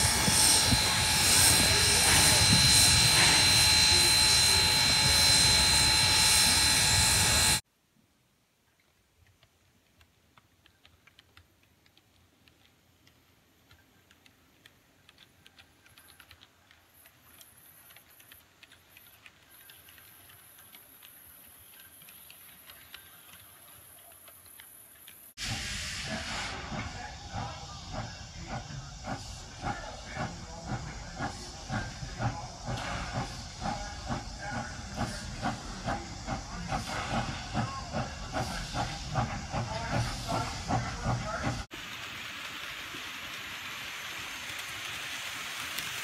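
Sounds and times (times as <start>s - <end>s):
steam locomotive chuffing: 0.0s - 7.6s, 15.8s - 46.0s
faint rapid ticking: 9.9s - 25.3s.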